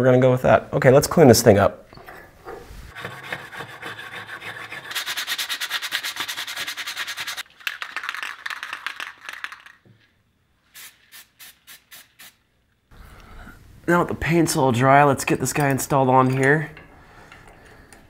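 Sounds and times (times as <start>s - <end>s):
spray can ball rattling: 5.0s - 10.1s, 10.7s - 12.4s
spray hissing: 10.7s - 12.5s.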